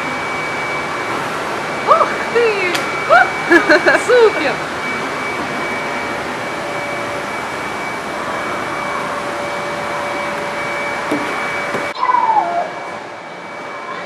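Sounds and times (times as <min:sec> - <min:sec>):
whooshing air with high whine: 0:00.0 - 0:14.0.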